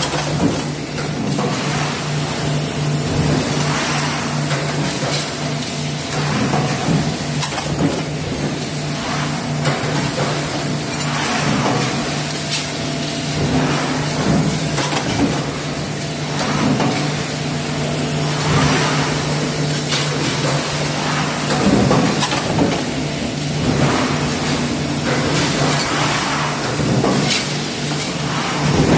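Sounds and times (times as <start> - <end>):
machine hum: 0.0 - 28.9
stamping press clanks and thuds: 6.1 - 8.6, 18.4 - 23.0.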